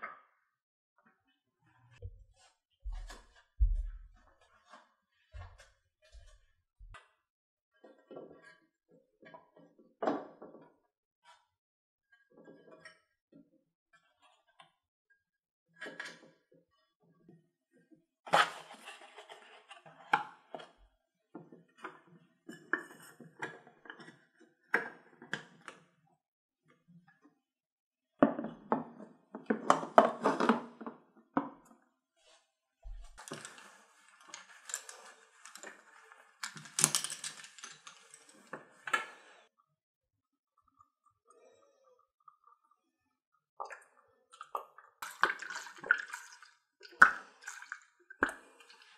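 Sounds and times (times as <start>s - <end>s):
plastic bottles clicking and knocking: 32.9s - 39.2s, 44.4s - 48.9s.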